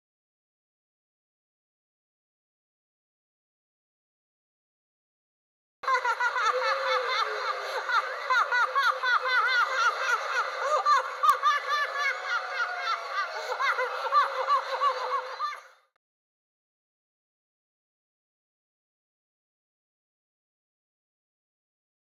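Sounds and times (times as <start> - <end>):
women laughing: 5.8 - 15.8.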